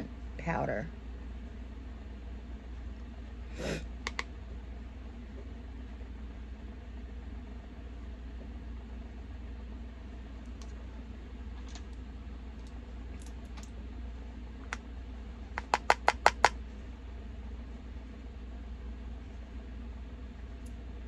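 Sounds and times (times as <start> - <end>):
steady low hum: 0.0 - 21.0
click: 4.0 - 4.3
sharp taps: 15.6 - 16.6.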